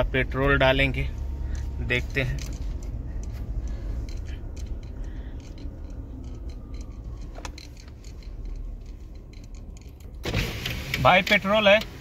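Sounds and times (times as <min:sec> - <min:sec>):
car interior rumble: 0:00.0 - 0:12.0
light clicks and taps: 0:01.3 - 0:10.2.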